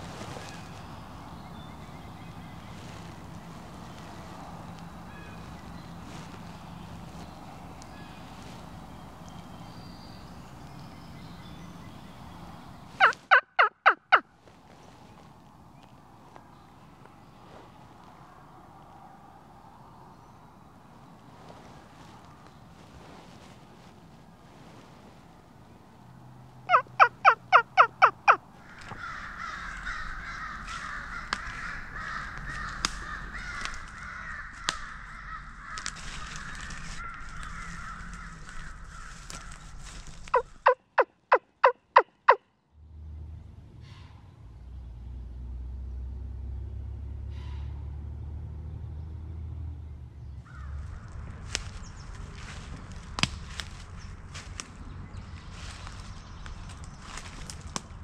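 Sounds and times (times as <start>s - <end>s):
outdoor background: 0.0s - 58.0s
turkey yelps: 13.0s - 14.2s, 26.7s - 39.6s, 40.3s - 42.4s.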